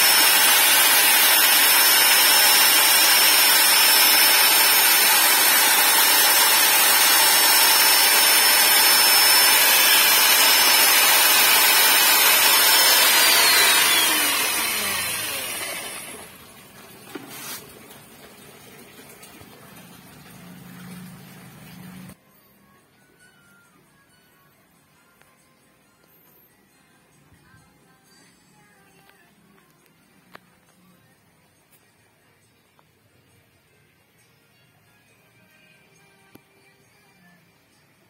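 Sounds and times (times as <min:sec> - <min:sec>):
electric drill mixing liquid: 0:00.0 - 0:17.8, 0:20.5 - 0:22.2.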